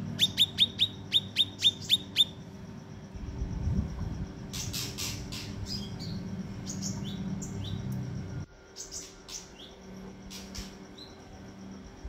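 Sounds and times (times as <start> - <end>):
low steady hum: 0.0 - 12.0
bird chirping and whistling: 0.2 - 2.4, 4.6 - 7.8, 8.8 - 11.2.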